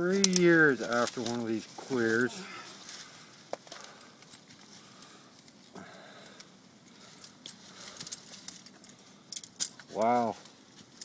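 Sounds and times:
clothing rustling and scraping on rock: 0.4 - 5.2.

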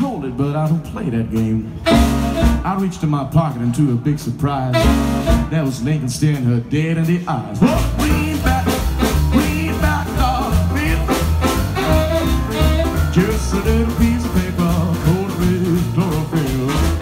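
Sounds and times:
drums swing beat: 0.0 - 17.0
upright bass walking line: 0.0 - 17.0
piano: 1.7 - 3.0, 4.7 - 5.8, 7.6 - 17.0
saxophone: 1.8 - 2.7, 4.7 - 5.6, 8.2 - 15.3.

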